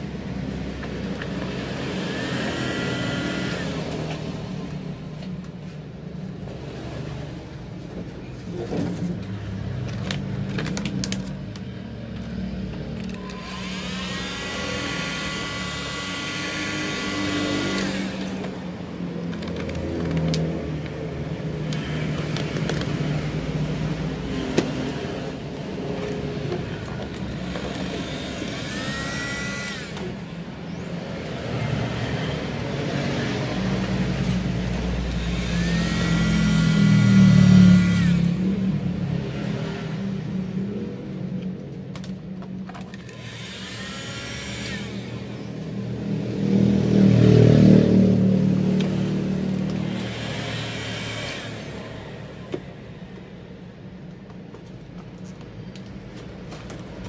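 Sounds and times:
heat gun blower whine: 1.7 - 4.2, 13.1 - 18.7, 27.4 - 30.3, 35.2 - 38.4, 43.1 - 45.5, 49.8 - 52.1.

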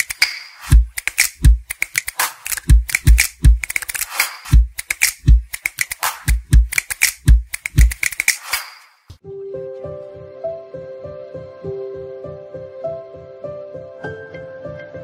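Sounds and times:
electronic music beat: 0.0 - 9.0.

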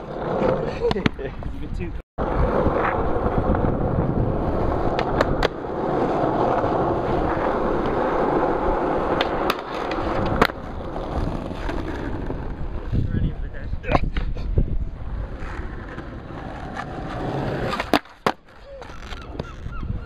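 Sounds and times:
skateboard wheels rolling: 0.0 - 20.0
skateboard clacks: 4.8 - 12.6, 15.4 - 19.7.

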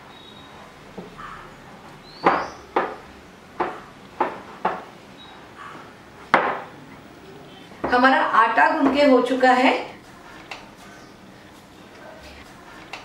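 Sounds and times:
sharp knocks: 2.2 - 3.0, 3.6 - 4.9, 6.3 - 6.7.

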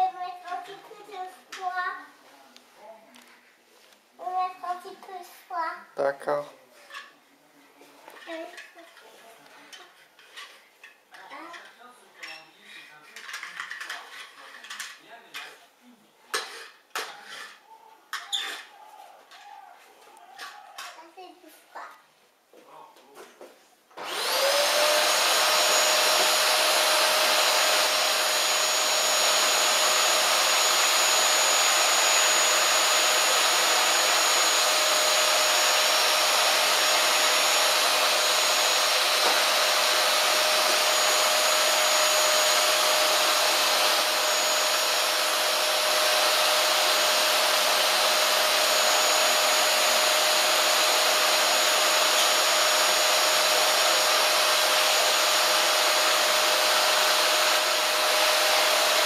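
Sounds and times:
vacuum cleaner motor whine: 24.0 - 59.0.

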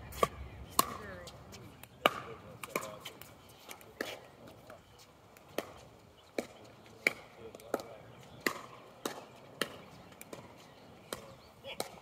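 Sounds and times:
paddles hitting plastic ball: 6.4 - 12.0.

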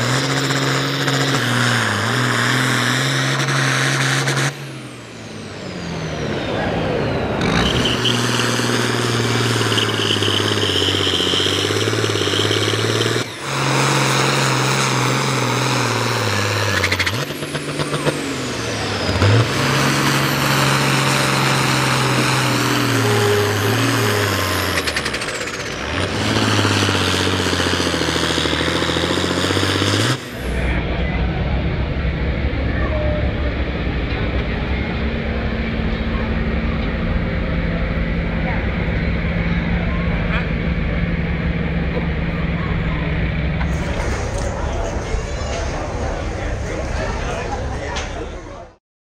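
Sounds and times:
tractor diesel engines at full throttle: 0.0 - 48.8
high whine: 30.2 - 48.6.

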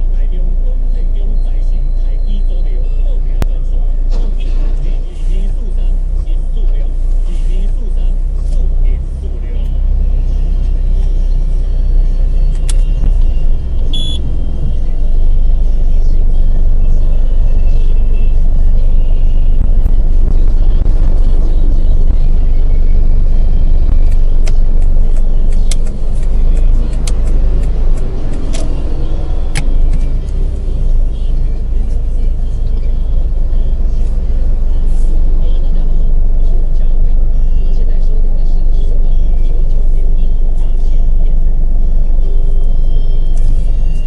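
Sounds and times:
city traffic rumble: 0.0 - 44.0
sharp clicks: 23.9 - 28.9.

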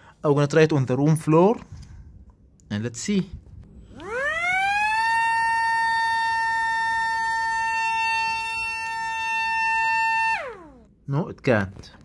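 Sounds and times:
toy plane motor whining: 3.7 - 10.9.

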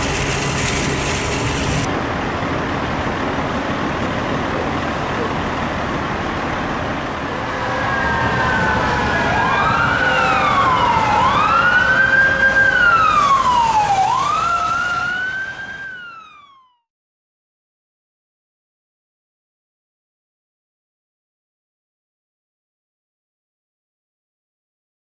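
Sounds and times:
street traffic: 0.0 - 16.6
emergency siren wailing: 7.0 - 16.9.

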